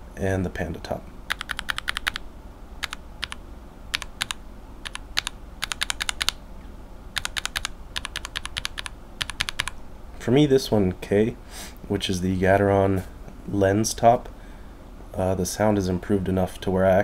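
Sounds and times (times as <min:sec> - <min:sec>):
mechanical keyboard keystrokes: 0:01.3 - 0:02.2, 0:02.8 - 0:06.4, 0:07.2 - 0:09.8.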